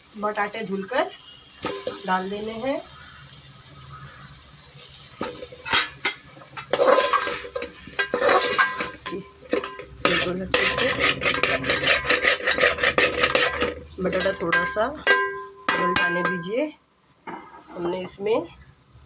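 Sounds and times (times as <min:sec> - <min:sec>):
metal spoon stirring in metal pot: 0:01.3 - 0:02.8, 0:04.8 - 0:16.6.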